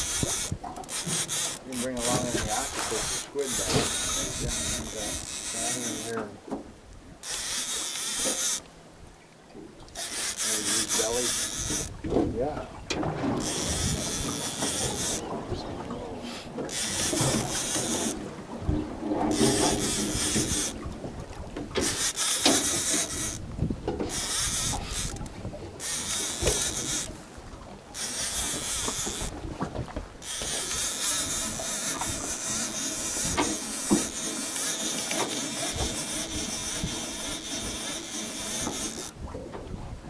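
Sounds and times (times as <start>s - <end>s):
wind blowing across microphone: 11.3s - 27.8s, 28.4s - 32.4s, 38.7s - 40.0s.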